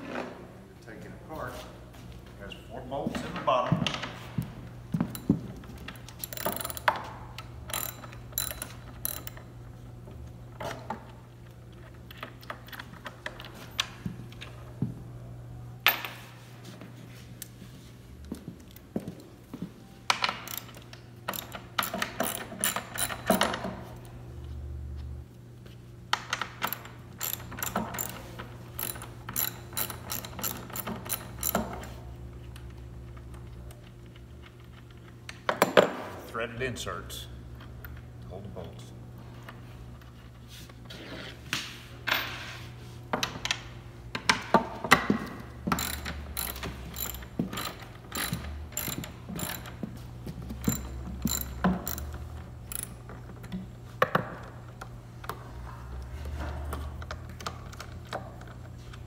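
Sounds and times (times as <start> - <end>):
ratchet wrench clicking: 6.2 - 7.0, 7.7 - 9.4, 20.5 - 23.6, 26.6 - 31.9, 45.7 - 49.8, 50.6 - 53.0.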